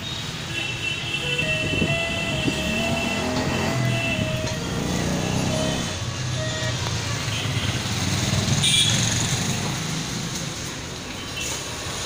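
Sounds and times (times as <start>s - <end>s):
diesel generator droning: 1.2s - 7.4s.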